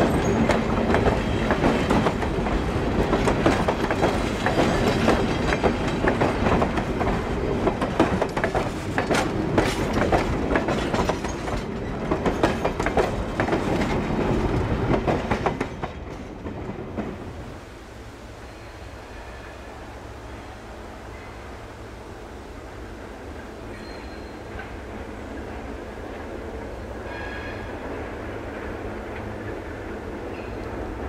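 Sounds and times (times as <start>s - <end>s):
train wheels clacking on track: 0.0s - 17.2s
train rumble: 0.0s - 31.0s.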